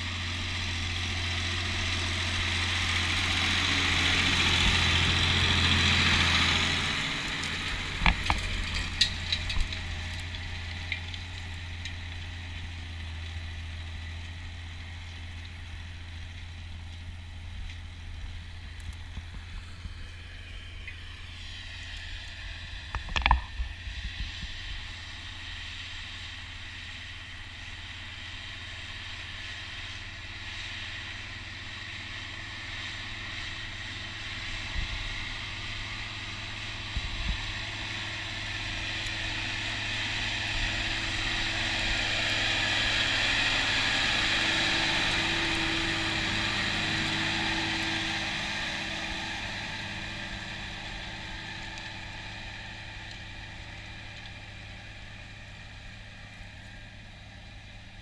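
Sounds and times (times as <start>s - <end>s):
tractor diesel engine under load: 0.0s - 58.0s.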